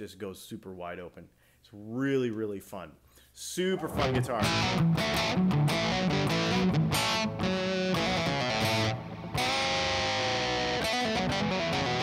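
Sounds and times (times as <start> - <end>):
electric guitar through amp: 3.8 - 12.0.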